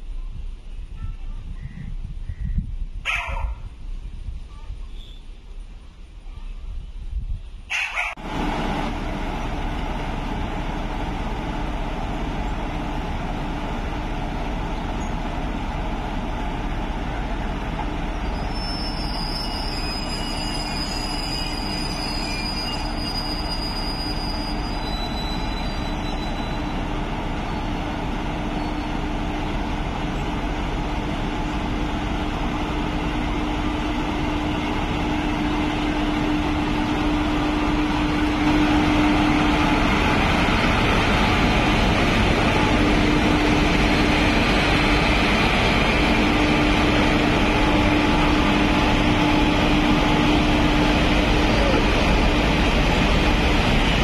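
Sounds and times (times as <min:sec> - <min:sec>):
electric locomotives running: 0:07.9 - 0:54.0
thin high whistling: 0:18.3 - 0:26.7.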